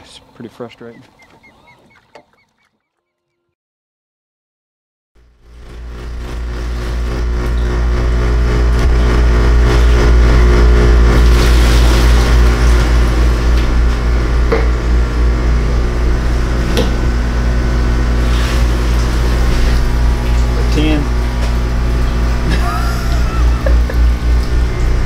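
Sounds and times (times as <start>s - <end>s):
outboard motor running: 0.0s - 3.0s, 5.2s - 25.0s
water rushing: 9.1s - 25.0s.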